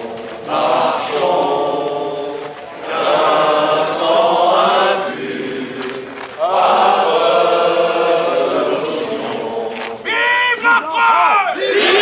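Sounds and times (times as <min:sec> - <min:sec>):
crowd cheering: 0:05.8 - 0:12.0.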